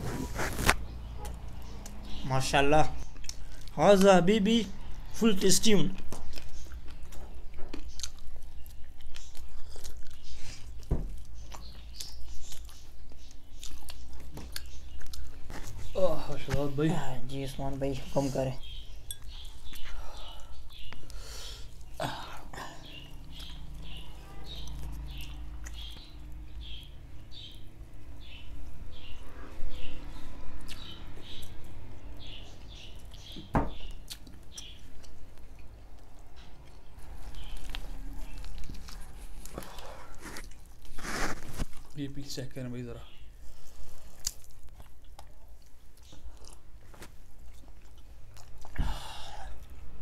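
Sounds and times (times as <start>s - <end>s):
bird chirping: 0.0s - 44.3s
people eating with hands: 0.0s - 50.0s
people chewing chicken: 3.1s - 3.8s, 5.9s - 16.3s, 34.0s - 42.0s, 43.4s - 50.0s.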